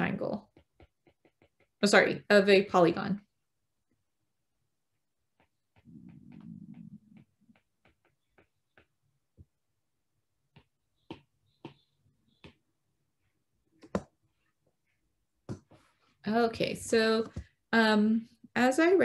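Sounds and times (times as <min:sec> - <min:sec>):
stylus tapping on a screen: 0:00.4 - 0:02.0, 0:05.3 - 0:09.6, 0:10.5 - 0:12.7, 0:13.8 - 0:14.2.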